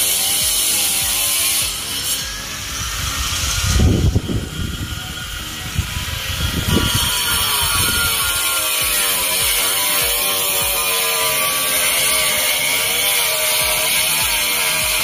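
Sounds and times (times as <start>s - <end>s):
angle grinder cutting tile: 0.0s - 15.0s.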